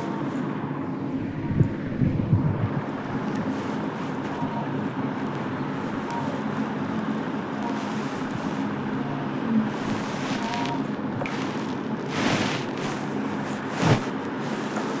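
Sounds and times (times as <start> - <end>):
background hum and hiss: 0.0 - 15.0
short whooshing noise: 12.1 - 14.2.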